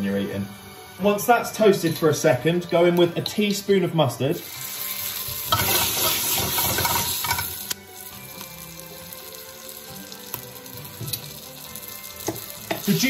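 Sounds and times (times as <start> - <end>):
butter and oil sizzling in a pan: 4.3 - 13.0.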